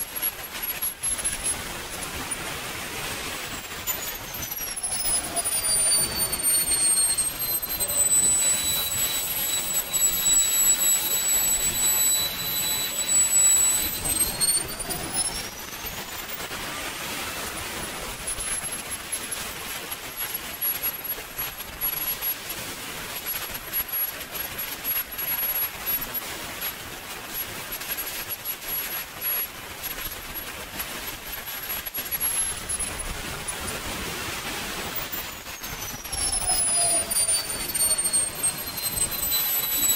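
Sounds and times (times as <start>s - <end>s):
jet turbine whine: 3.6s - 16.6s.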